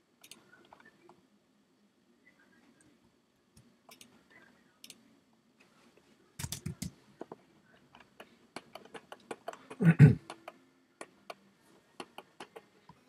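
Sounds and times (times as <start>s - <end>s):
computer mouse clicks: 0.2s - 0.9s, 3.9s - 4.1s, 6.4s - 6.9s.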